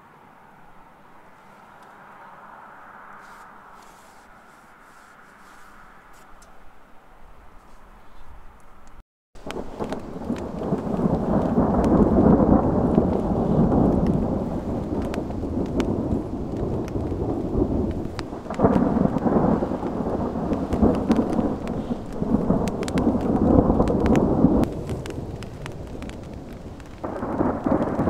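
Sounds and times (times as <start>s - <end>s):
raindrop ticks: 8.8s - 28.0s
rain falling: 9.4s - 28.0s
thunder rumbling: 9.4s - 28.0s.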